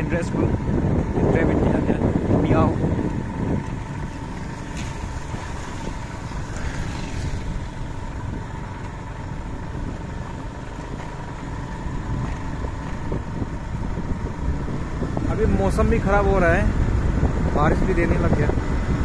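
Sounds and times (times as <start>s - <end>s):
motor scooter running: 0.0s - 19.0s.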